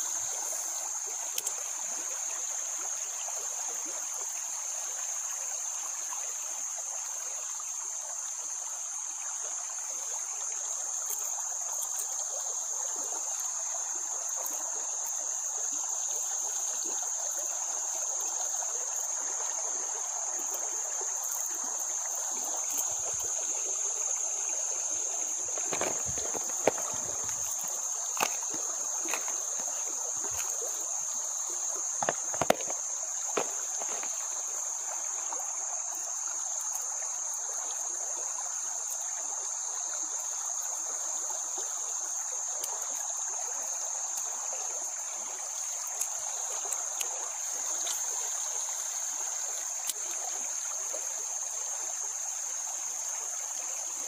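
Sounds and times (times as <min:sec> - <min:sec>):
insects droning: 0:00.0 - 0:54.0
water hissing: 0:14.3 - 0:38.7
sharp clicks and knocks: 0:32.0 - 0:32.8.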